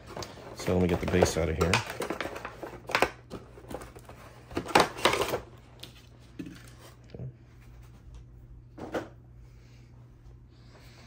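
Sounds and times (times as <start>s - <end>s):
packaging knocks: 0.0s - 5.4s
cardboard and plastic rustling: 0.0s - 7.0s.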